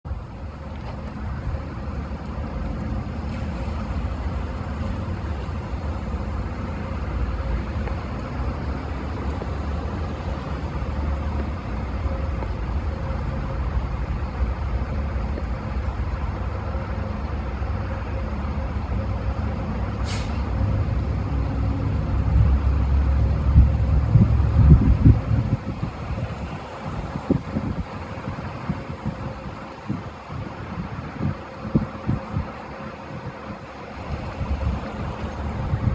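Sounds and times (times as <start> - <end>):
traffic rumble: 0.0 - 35.9
short sharp hiss: 20.0 - 20.5.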